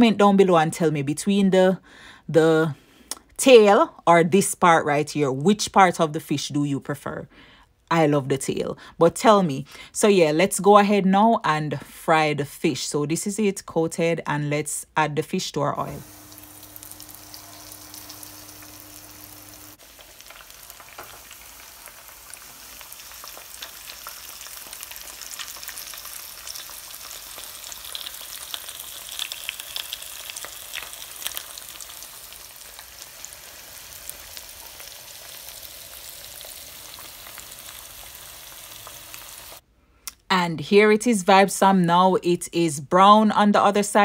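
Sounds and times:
fish frying in hot oil: 16.0s - 39.6s.

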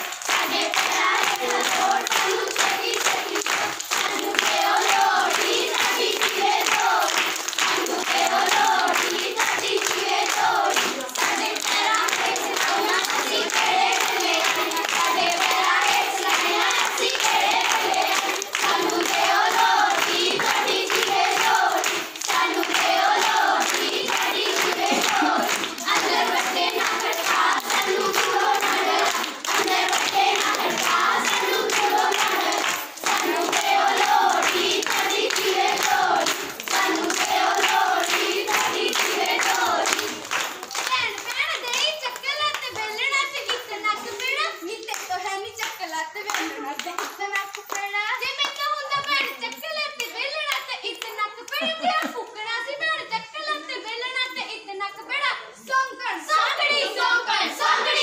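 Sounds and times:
girls singing folk song: 0.0s - 41.4s, 56.2s - 58.0s
rhythmic hand clapping: 0.0s - 52.3s, 56.4s - 58.0s.

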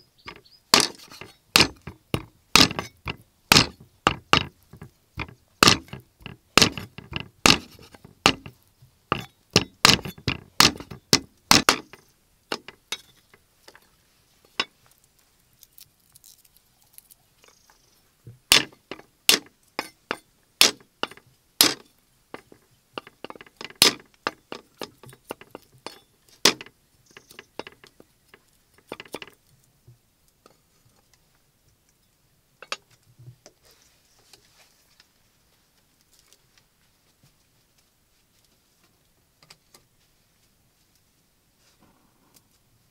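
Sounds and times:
cleaver chopping on wooden block: 0.3s - 8.5s, 9.1s - 12.8s, 18.5s - 20.0s, 20.6s - 21.8s, 22.4s - 26.7s.

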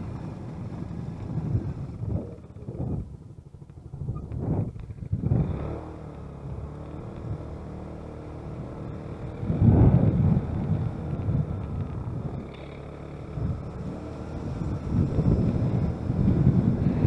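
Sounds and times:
vehicle engine running: 0.0s - 17.0s
wind buffeting microphone: 0.0s - 17.0s.

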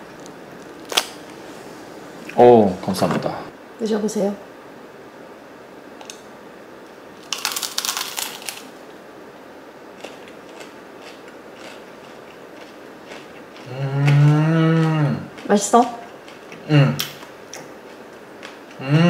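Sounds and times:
crusty bread crunching: 7.2s - 8.7s, 10.0s - 15.5s
faint chewing clicks: 10.0s - 18.8s.

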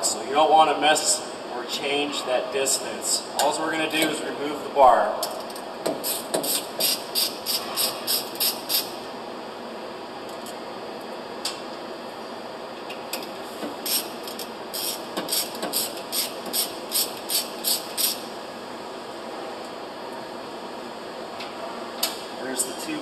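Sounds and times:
ratchet wrench clicking: 6.0s - 8.9s, 13.9s - 18.2s.

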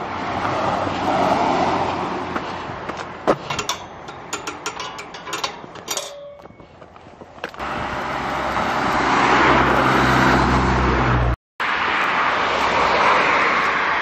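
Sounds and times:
car passing by: 0.0s - 2.9s, 7.6s - 14.0s
metal gate clanking and rattling: 3.3s - 6.6s
metallic ring: 3.4s - 6.6s.

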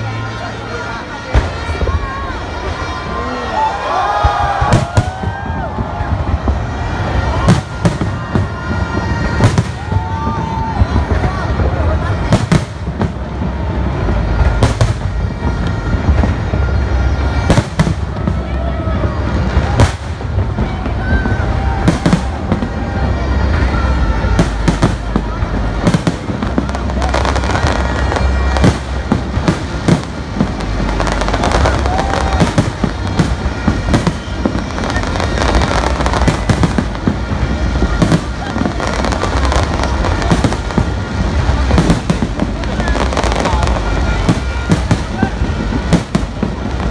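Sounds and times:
firework bangs: 0.0s - 46.9s
rumble of firework bursts: 0.0s - 46.9s.

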